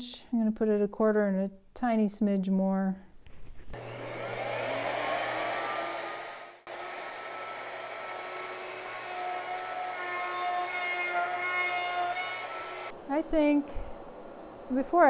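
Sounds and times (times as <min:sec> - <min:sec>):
router whining: 0:03.7 - 0:13.0.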